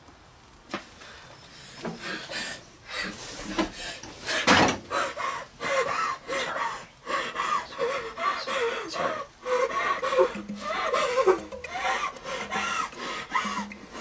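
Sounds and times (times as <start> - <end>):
person sobbing and gasping: 5.0 - 14.0.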